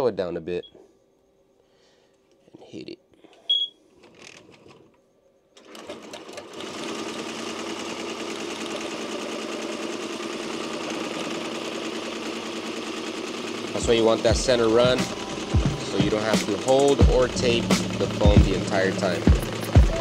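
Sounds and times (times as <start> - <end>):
short beep: 3.5 - 3.8
embroidery machine stitching rattle: 5.6 - 20.0.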